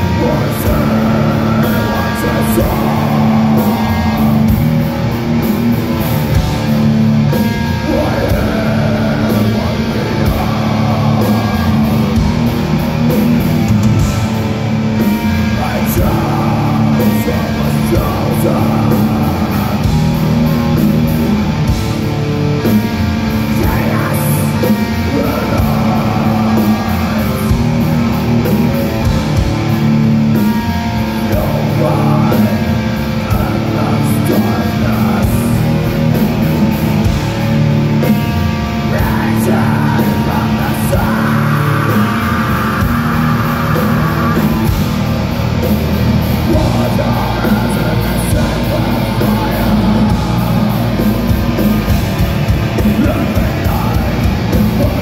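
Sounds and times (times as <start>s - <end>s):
person singing into microphone: 0.0s - 4.6s, 7.5s - 12.2s, 15.4s - 20.2s, 23.4s - 27.7s, 31.1s - 35.8s, 38.8s - 44.8s, 46.4s - 55.0s
bass guitar: 0.0s - 55.0s
drums: 0.0s - 55.0s
electric guitar: 0.0s - 55.0s.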